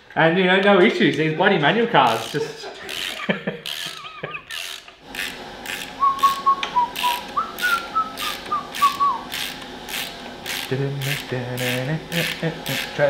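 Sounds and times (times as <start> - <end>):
ratchet wrench clicking: 2.0 - 6.4, 7.0 - 13.0
person whistling a tune: 6.0 - 9.2.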